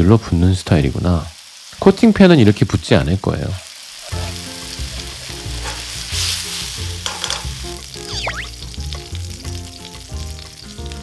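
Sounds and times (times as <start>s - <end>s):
oysters sizzling in hot oil: 0.0s - 11.0s
chopsticks stirring in pan: 3.6s - 10.6s.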